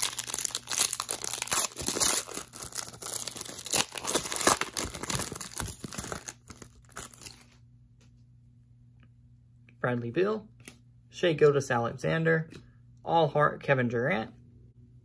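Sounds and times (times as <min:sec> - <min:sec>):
wrapper tearing and crinkling: 0:00.0 - 0:07.6.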